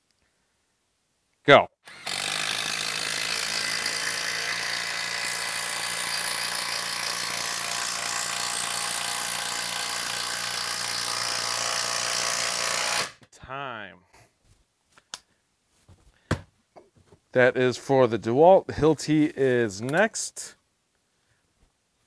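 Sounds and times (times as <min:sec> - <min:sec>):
impact driver hammering: 0:01.9 - 0:13.3.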